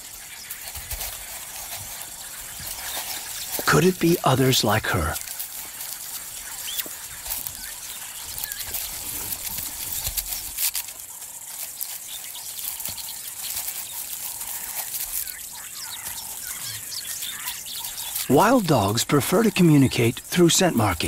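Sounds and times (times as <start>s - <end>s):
rustling and snapping of dry grass: 0.0s - 18.3s
steady hiss: 0.0s - 21.0s
small bird chirps: 5.8s - 18.3s.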